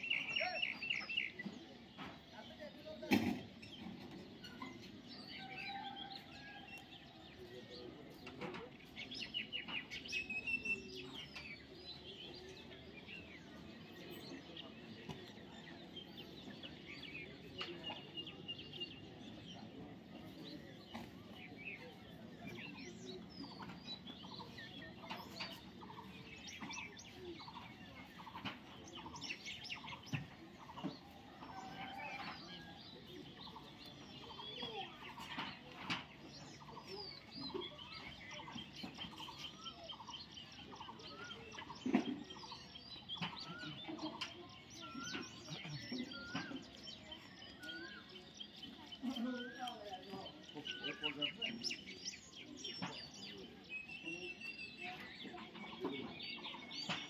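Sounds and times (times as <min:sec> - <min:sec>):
birds chirping and calling: 0:00.0 - 0:57.0.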